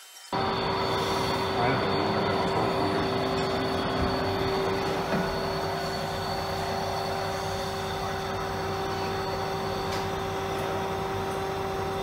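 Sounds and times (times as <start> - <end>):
lathe machine hum: 0.3 - 12.0.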